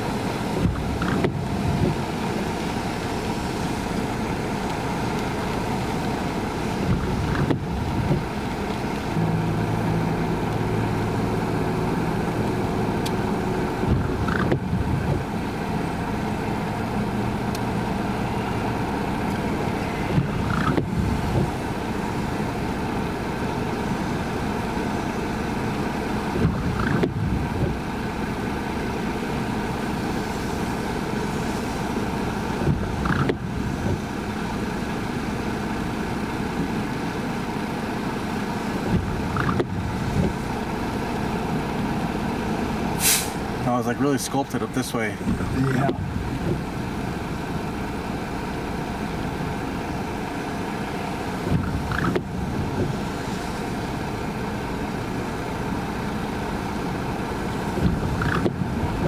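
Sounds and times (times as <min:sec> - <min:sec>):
rain on a car: 0:00.0 - 0:59.0
windshield wiper sweeping: 0:00.0 - 0:59.0
low hum: 0:03.2 - 0:27.9.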